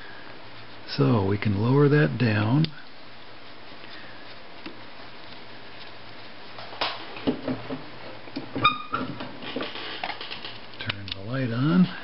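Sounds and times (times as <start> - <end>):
room hiss: 0.0 - 12.0
small clicks and rustles: 2.6 - 11.3.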